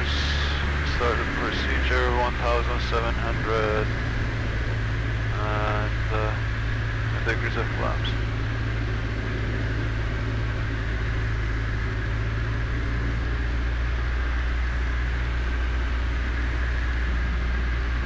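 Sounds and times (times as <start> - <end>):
aircraft engine and propeller hum: 0.0 - 18.0.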